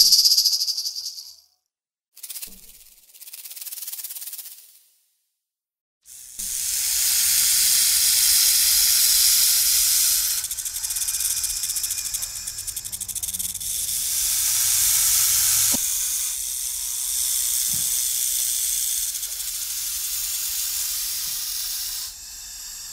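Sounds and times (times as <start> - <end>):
snake hissing: 6.2 - 22.9.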